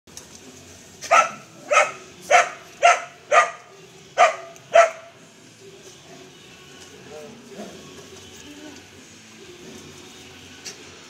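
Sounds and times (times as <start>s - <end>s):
dog barking: 1.0s - 5.1s.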